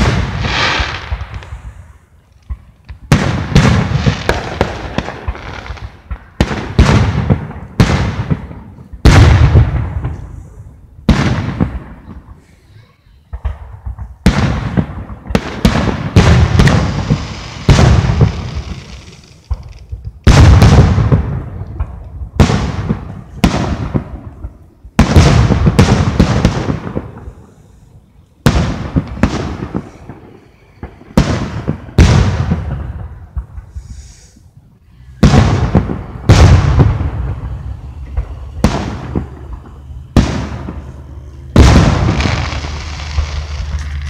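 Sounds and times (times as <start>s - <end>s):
firework shells booming: 0.0s - 12.5s, 13.2s - 44.0s.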